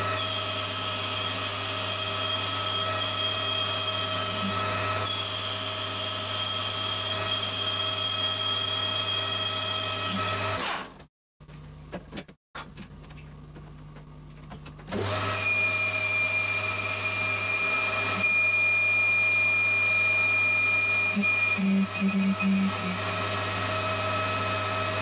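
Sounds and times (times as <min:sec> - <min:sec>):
high squeak from metal cutting: 0:00.2 - 0:10.2, 0:15.4 - 0:23.2.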